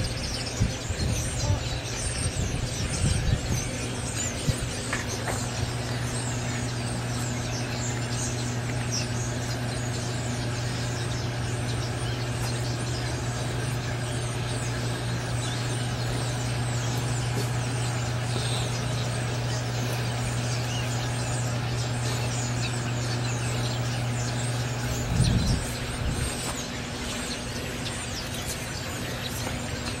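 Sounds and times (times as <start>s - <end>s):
small birds chirping: 0.0s - 30.0s
steady low hum: 0.0s - 30.0s.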